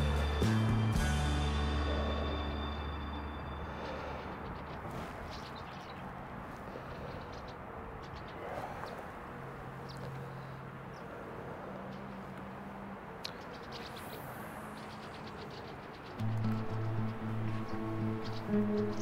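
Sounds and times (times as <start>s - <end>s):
music with bass line: 0.0s - 3.1s, 16.2s - 19.0s
outdoor background noise: 0.0s - 19.0s
bird chirps: 13.2s - 19.0s.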